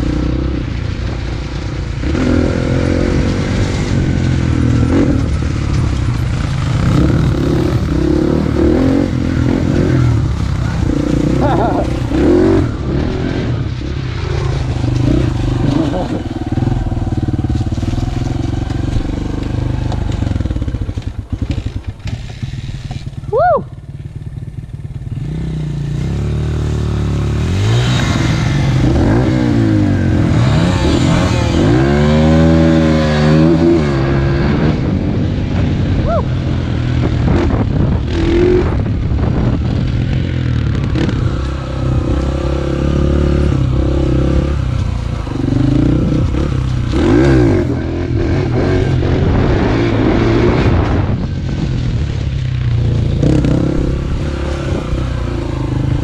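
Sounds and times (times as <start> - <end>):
bike rattling and knocking: 1.1 - 23.3
dirt bike engine revving: 1.9 - 23.4, 24.3 - 56.0.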